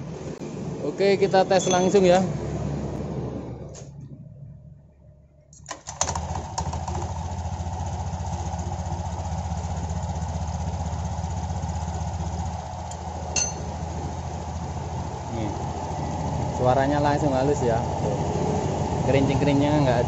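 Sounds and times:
scooter engine starting and idling: 5.6s - 20.0s.

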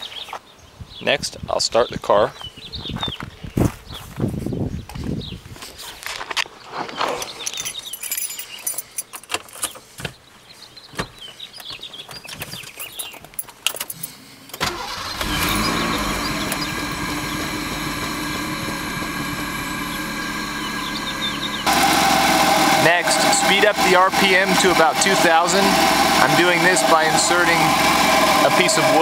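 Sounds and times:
car engine starting and idling: 14.5s - 29.0s.

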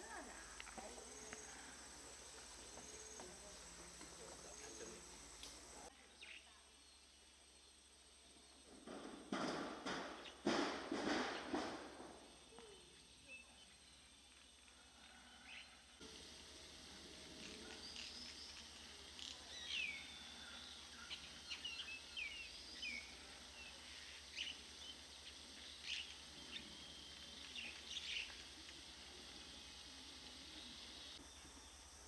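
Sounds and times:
steady high hiss: 0.0s - 8.7s, 15.5s - 32.0s
birds chirping and whistling: 19.2s - 23.2s.

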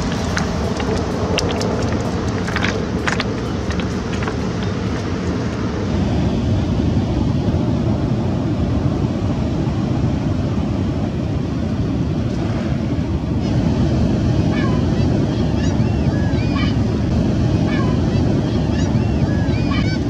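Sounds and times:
fast-flowing river water: 0.0s - 6.1s.

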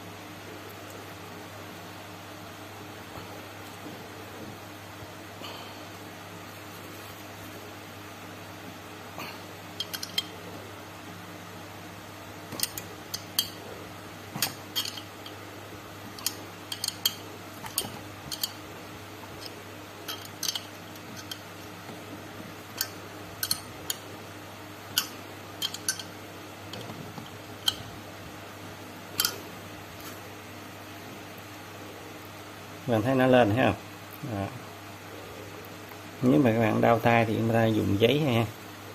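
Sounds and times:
steady low hum: 0.0s - 38.9s
metal tool clinking on metal: 9.8s - 10.3s, 12.6s - 13.6s, 14.4s - 15.4s, 16.2s - 18.6s, 20.1s - 21.4s, 22.8s - 24.0s, 25.0s - 26.1s.

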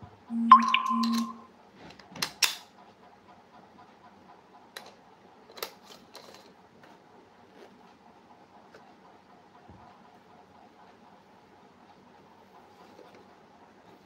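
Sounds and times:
electronic tone: 0.3s - 1.4s.

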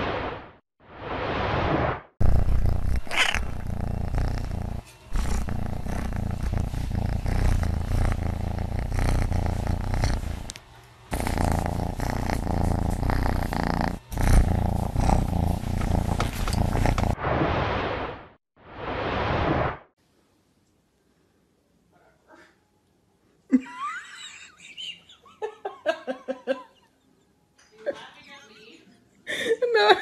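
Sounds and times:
cat purring loudly: 2.2s - 17.2s.

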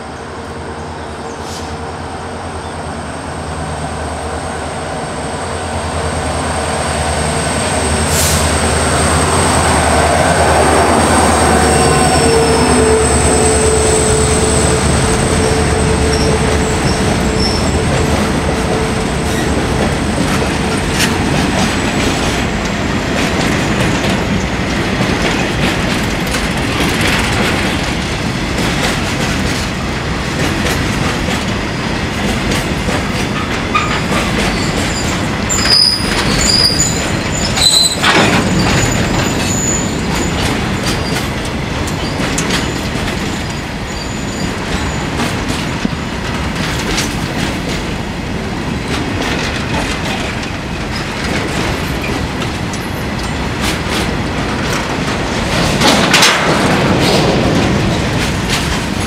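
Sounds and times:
locomotive engine drone: 0.0s - 29.1s
train wheels clattering over rail joints: 15.5s - 59.0s.

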